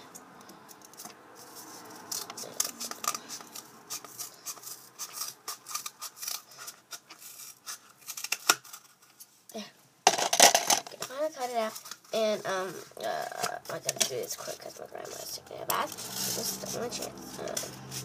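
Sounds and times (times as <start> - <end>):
scissors snipping tape: 2.0 - 7.0.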